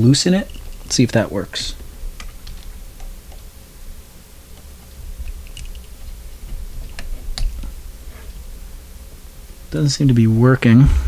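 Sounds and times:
low handling rumble: 6.1s - 11.0s.

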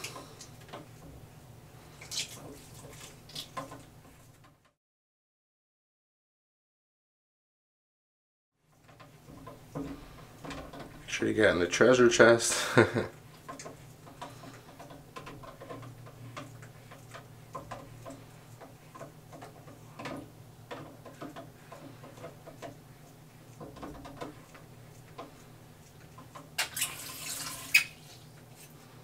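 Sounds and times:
rustling swish in water: 1.7s - 4.5s.

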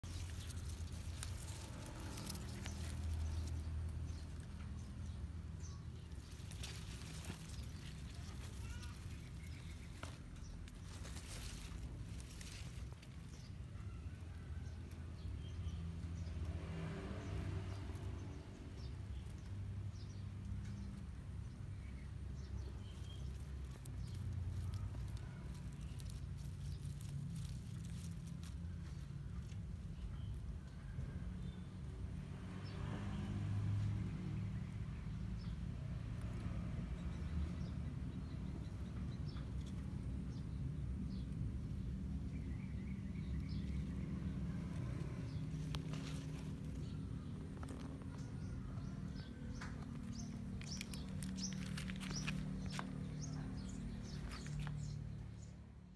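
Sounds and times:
low steady rumble: 0.0s - 18.6s.

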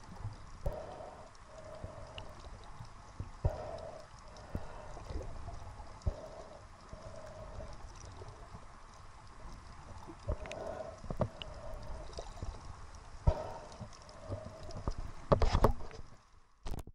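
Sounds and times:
underwater rumble of moving water: 0.0s - 16.7s
underwater clicks and knocks: 10.2s - 12.6s, 13.2s - 16.9s.

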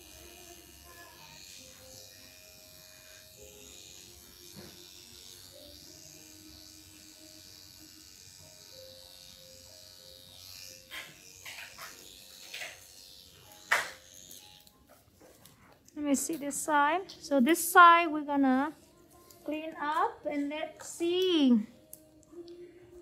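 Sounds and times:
small electric motor buzzing: 0.0s - 15.0s
quiet music: 0.0s - 23.0s.

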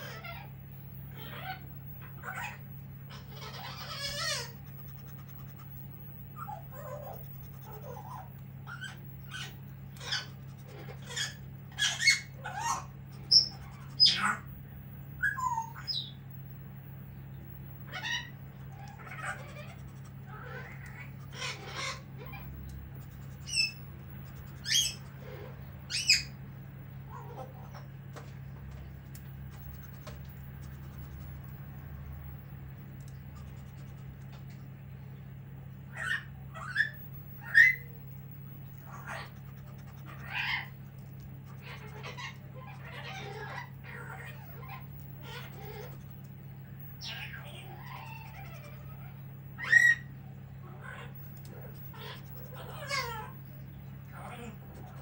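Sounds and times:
parrot squawking: 0.0s - 14.6s, 15.2s - 16.2s, 17.9s - 26.4s, 27.1s - 27.9s, 35.9s - 38.0s, 38.7s - 46.2s, 46.8s - 55.0s
steady low hum: 0.0s - 55.0s.

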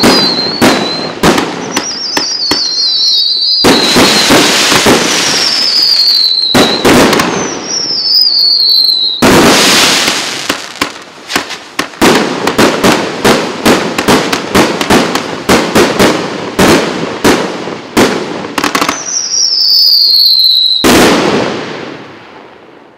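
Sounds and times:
falling firework whistle: 0.0s - 11.6s, 18.8s - 21.3s
loud firework blast: 0.0s - 19.3s, 20.0s - 22.6s
firework bangs and crackling: 0.0s - 22.9s.

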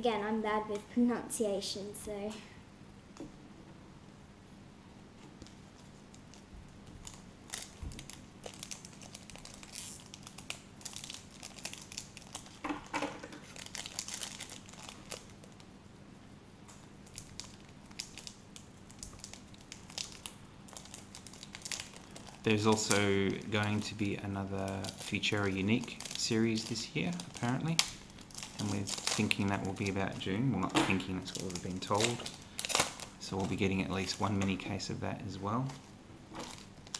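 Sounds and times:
wrapper crinkling and tearing: 5.4s - 15.7s, 17.0s - 34.8s, 35.5s - 36.9s.

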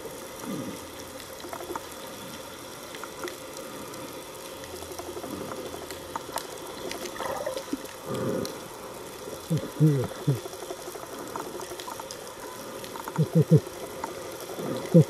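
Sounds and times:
muffled rush of water: 0.0s - 15.0s
muffled underwater hiss: 0.0s - 15.0s
faint clicks: 1.1s - 8.6s.

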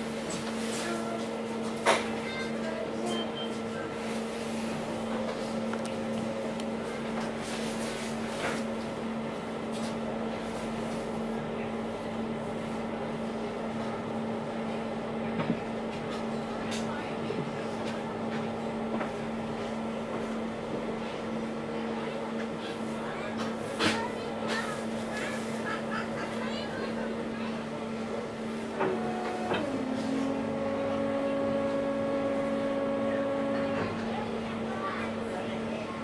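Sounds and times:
boat engines droning: 19.2s - 36.0s.

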